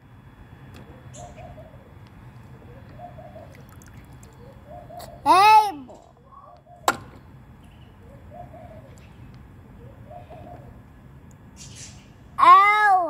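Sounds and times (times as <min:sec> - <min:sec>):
dove cooing: 0:00.7 - 0:07.0, 0:07.8 - 0:11.1.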